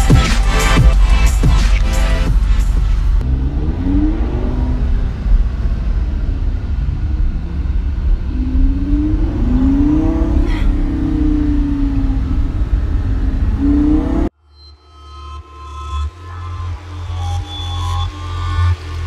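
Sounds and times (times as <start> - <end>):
car engine rumble from inside cabin: 2.8 - 14.3.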